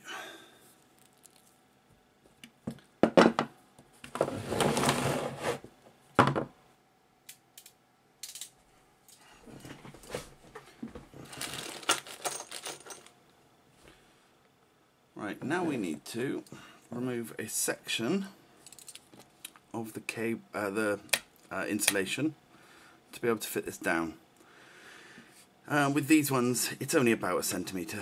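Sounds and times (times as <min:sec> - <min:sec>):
tools knocking on wooden bench: 0:03.0 - 0:03.5, 0:06.2 - 0:06.5
cable dragging across bench: 0:04.2 - 0:05.7.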